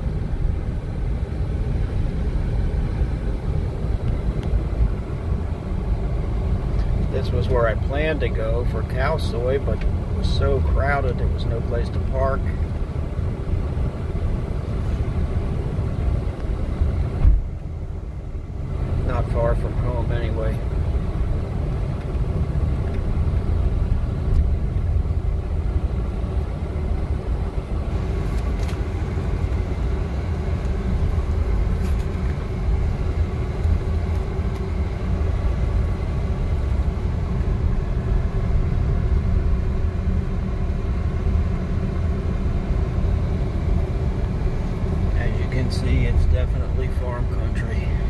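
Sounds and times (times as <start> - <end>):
car engine and tyres rumble: 0.0 - 48.0.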